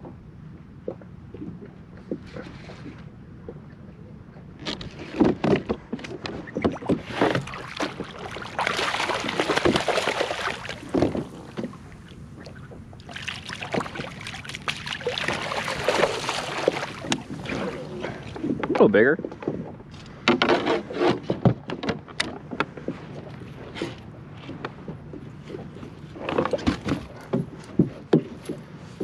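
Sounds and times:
water splashing: 6.5s - 19.0s.

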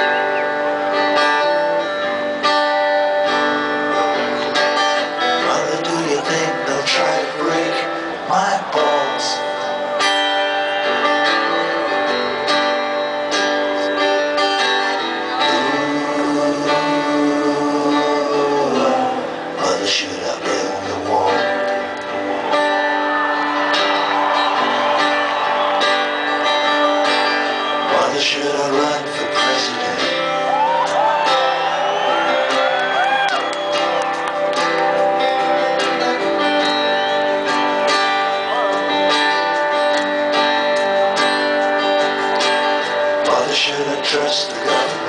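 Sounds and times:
strummed guitar: 0.0s - 45.0s
voices singing: 15.3s - 21.8s, 27.4s - 30.2s.

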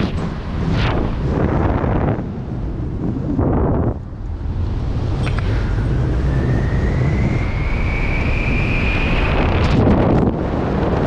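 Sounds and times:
flapping buffeting microphone: 0.0s - 11.0s
wind rushing over microphone: 0.0s - 11.0s
thin rising whistle: 5.2s - 9.8s.

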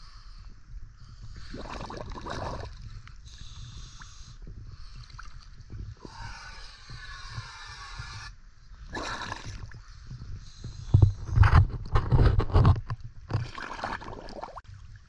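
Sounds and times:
water sloshing and lapping: 1.4s - 4.1s, 4.8s - 6.4s, 8.9s - 15.0s
water splash: 13.3s - 14.7s.

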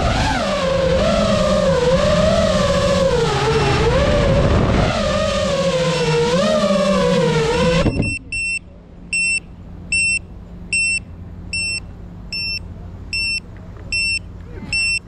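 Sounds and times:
drone motors whining: 0.0s - 15.0s
buzzer beeping: 7.9s - 8.6s, 9.2s - 12.6s, 13.2s - 15.0s.

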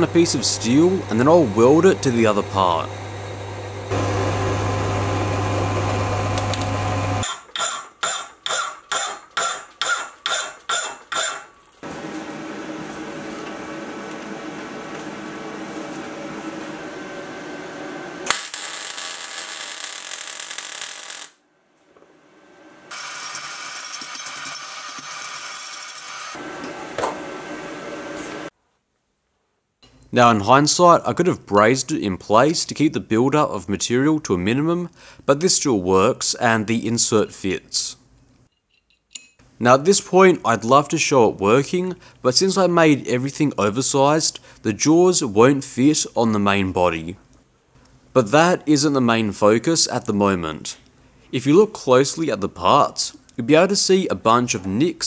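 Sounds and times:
metal lathe humming: 0.0s - 7.3s.

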